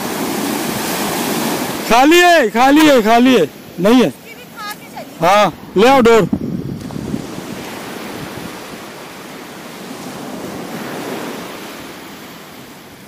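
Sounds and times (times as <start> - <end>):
surf washing onto beach: 0.0 - 13.0.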